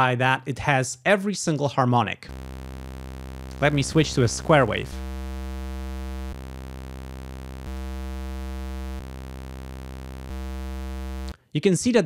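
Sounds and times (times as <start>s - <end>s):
low synthesizer note: 2.3s - 11.3s.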